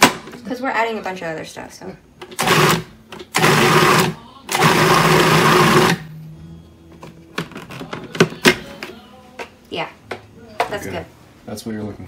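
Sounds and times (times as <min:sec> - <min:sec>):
food processor motor whirring: 0:02.4 - 0:06.0.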